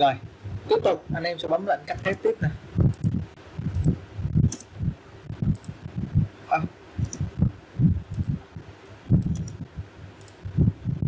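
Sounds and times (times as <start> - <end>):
low irregular thumps: 0.0 - 1.4, 2.4 - 11.0
computer mouse clicking: 2.9 - 4.7, 5.4 - 5.8, 7.0 - 7.3, 8.1 - 8.4, 9.1 - 9.6, 10.2 - 10.4.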